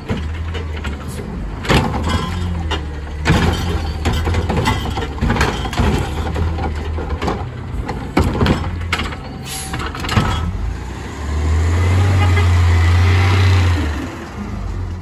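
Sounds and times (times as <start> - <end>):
clanks and knocks of mechanism: 0.0 - 10.6
garbage truck engine running: 0.0 - 15.0.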